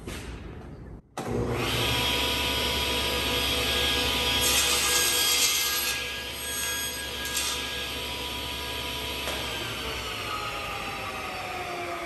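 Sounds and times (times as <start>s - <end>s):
table saw running: 1.2s - 12.0s
saw blade cutting board: 3.8s - 8.0s.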